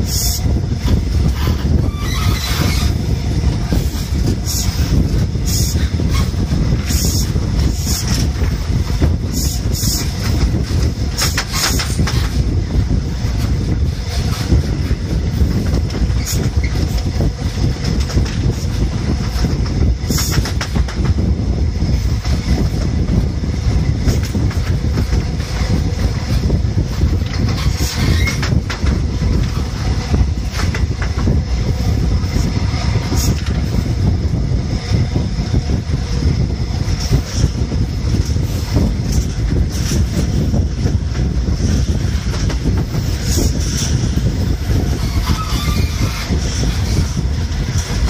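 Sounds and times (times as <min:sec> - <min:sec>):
sharp rail clicks: 0:00.0 - 0:48.0
train wheels rumbling on rails: 0:00.0 - 0:48.0
wind rushing over microphone: 0:00.0 - 0:48.0.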